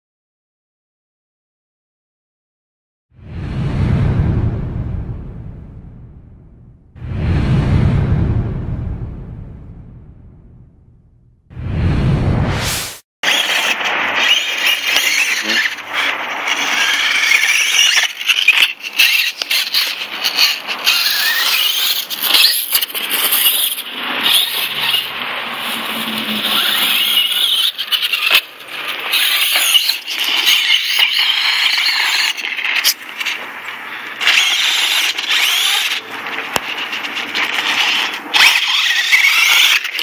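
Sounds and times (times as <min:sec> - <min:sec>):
rc truck motor whine: 0:13.3 - 0:40.0.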